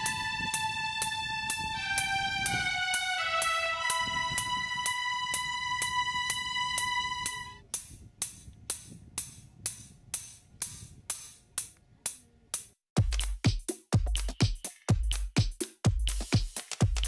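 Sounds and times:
electronic music: 0:00.0 - 0:07.6
ticking hi-hat beat: 0:00.0 - 0:17.0
heavy bass beat: 0:13.0 - 0:17.0.

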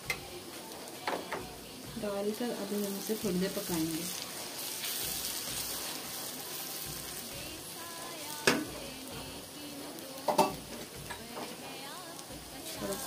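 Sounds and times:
onions sizzling in hot oil: 0:00.0 - 0:13.0.

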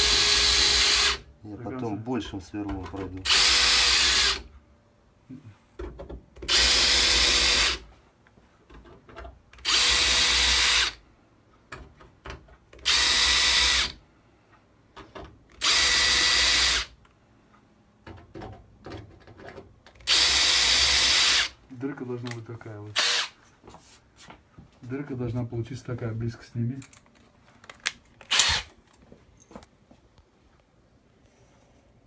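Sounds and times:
power drill whining: 0:00.0 - 0:01.2, 0:03.2 - 0:04.5, 0:06.5 - 0:07.8, 0:09.6 - 0:11.0, 0:12.8 - 0:14.0, 0:15.6 - 0:16.9, 0:20.0 - 0:21.6, 0:23.0 - 0:23.3, 0:28.3 - 0:28.7.

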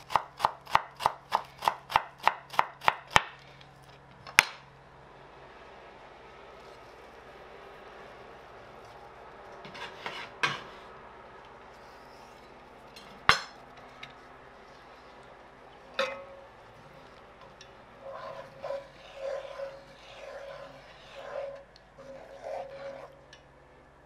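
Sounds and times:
wooden spatula scraping pan: 0:08.7 - 0:11.0, 0:15.9 - 0:23.2.

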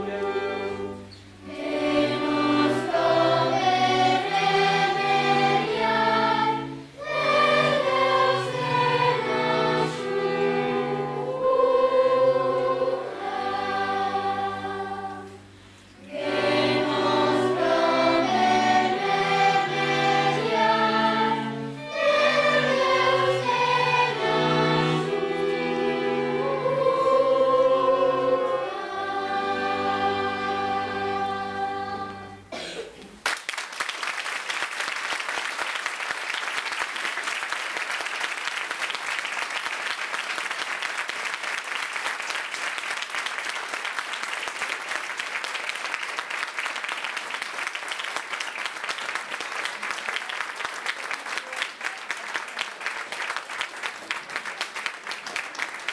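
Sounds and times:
string quartet: 0:00.0 - 0:32.5
children's choir singing: 0:00.0 - 0:32.8
audience applause: 0:33.2 - 0:55.9.

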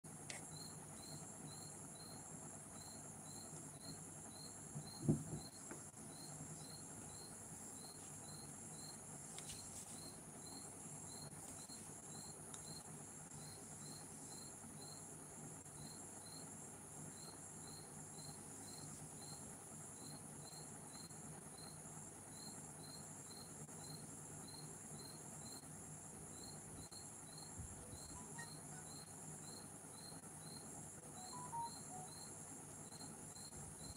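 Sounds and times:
faint crickets chirping: 0:00.1 - 0:33.9
low thump: 0:04.8 - 0:05.5
steady high hiss: 0:30.9 - 0:32.5.

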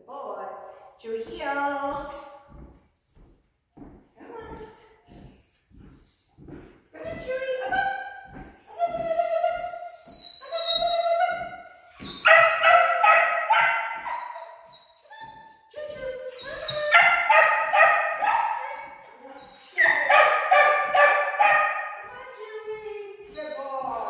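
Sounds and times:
dog barking: 0:12.2 - 0:14.5, 0:16.9 - 0:19.0, 0:19.8 - 0:22.0.

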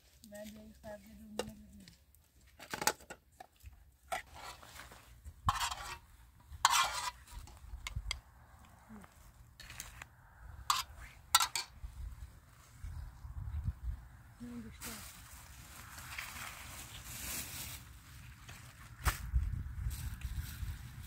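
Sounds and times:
ladle scraping: 0:04.1 - 0:08.0, 0:10.7 - 0:11.7
dishes clinking: 0:10.7 - 0:11.7.

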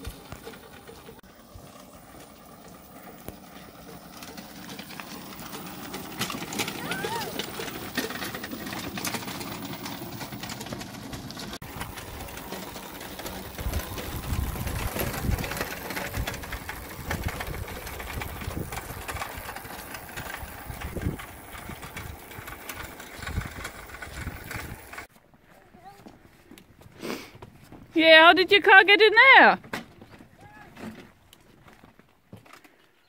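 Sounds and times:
electric go-kart motor running: 0:00.0 - 0:25.1
tyre noise on wet tarmac: 0:00.0 - 0:27.9
low rumbles: 0:01.1 - 0:25.1.

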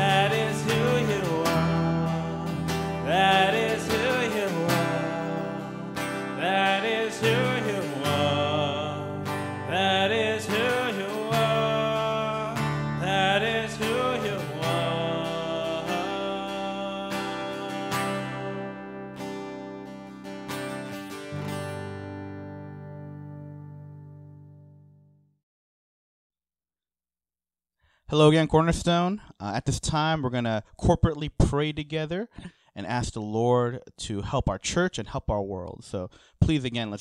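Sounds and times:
man singing: 0:00.0 - 0:19.0
strummed acoustic guitar: 0:00.0 - 0:24.8
electric bass guitar: 0:00.0 - 0:24.9.

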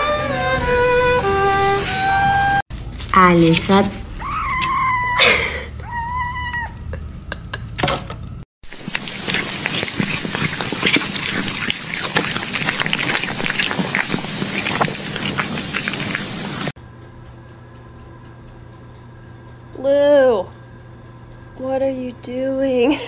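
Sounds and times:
cat meowing: 0:04.2 - 0:06.9.

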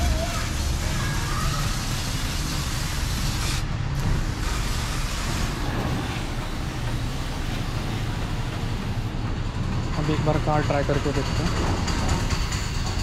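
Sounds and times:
water spray hiss: 0:00.0 - 0:09.2
pump motor hum: 0:00.0 - 0:10.4.

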